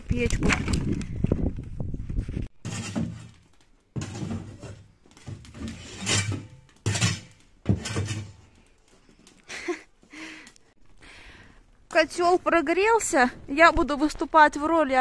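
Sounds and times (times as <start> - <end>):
snow shovel scraping wooden steps: 2.6 - 3.4, 4.0 - 8.4.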